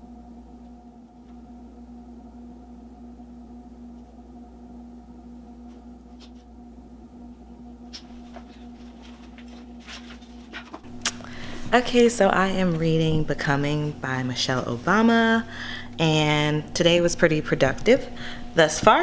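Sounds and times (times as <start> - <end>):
low room tone hum: 0.0 - 19.0
faint clicks and rustles: 7.9 - 11.1.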